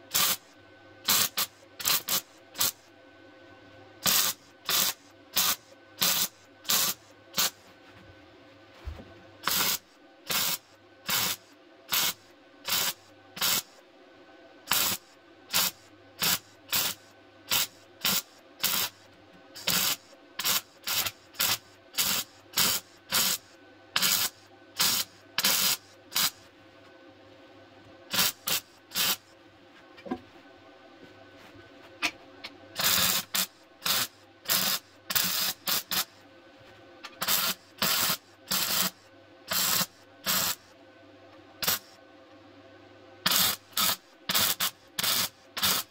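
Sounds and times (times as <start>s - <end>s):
welding arc crackling: 0.1s - 0.4s, 1.1s - 2.8s, 4.0s - 7.6s, 9.4s - 13.7s, 14.7s - 19.0s, 19.6s - 23.4s, 24.0s - 26.4s, 28.1s - 29.2s, 32.8s - 36.1s, 37.2s - 40.6s, 41.6s - 41.9s, 43.3s - 45.9s.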